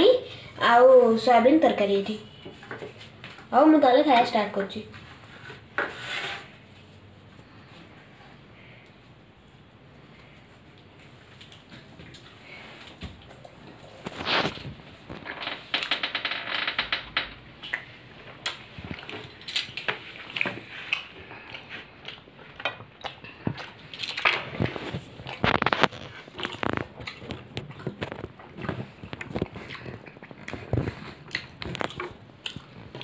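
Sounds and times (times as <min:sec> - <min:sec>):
person chewing flatbread: 0:09.8 - 0:15.2, 0:20.8 - 0:33.0.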